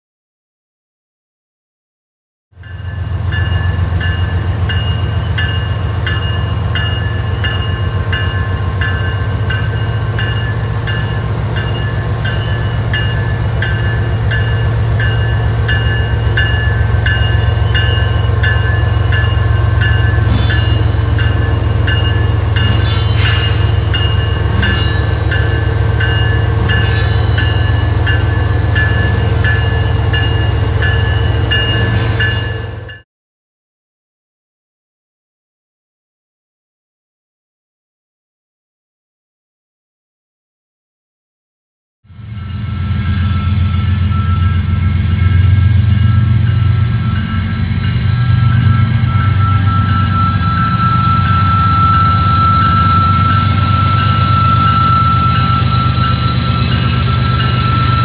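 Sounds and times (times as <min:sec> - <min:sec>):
diesel locomotive rumble: 0:03.0 - 0:33.0, 0:42.1 - 0:58.0.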